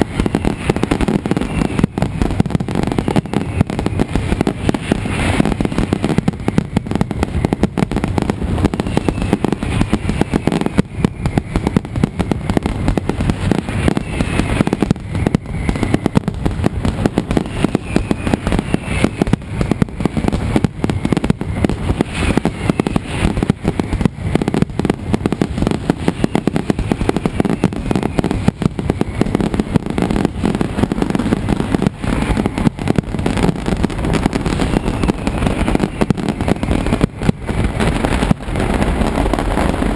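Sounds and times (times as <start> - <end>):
firecrackers banging rapidly: 0.0 - 39.9
whistles falling in pitch: 17.5 - 19.4.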